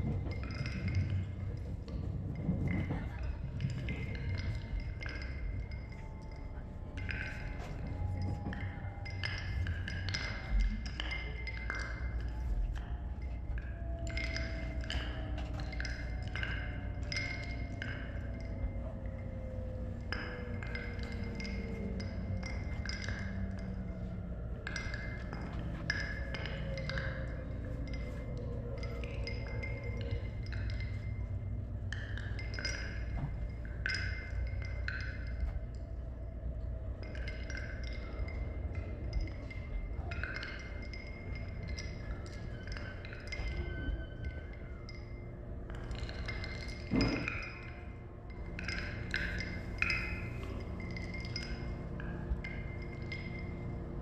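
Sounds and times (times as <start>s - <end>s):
train running rumble: 0.0s - 42.3s
faint low hum: 0.0s - 54.0s.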